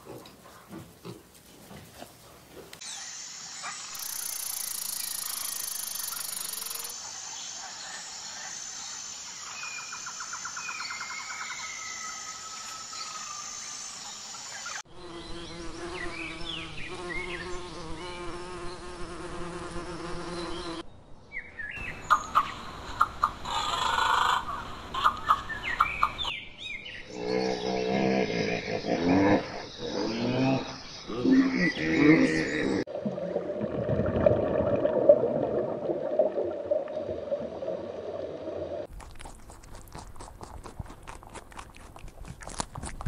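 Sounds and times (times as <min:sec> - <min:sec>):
bird chirps and trills: 0:02.8 - 0:06.9
insects droning and trilling: 0:02.8 - 0:18.0.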